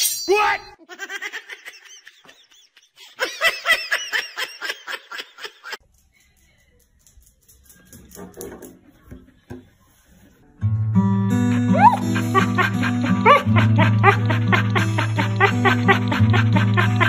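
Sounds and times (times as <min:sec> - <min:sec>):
person laughing high-pitched: 0:11.4 - 0:17.0.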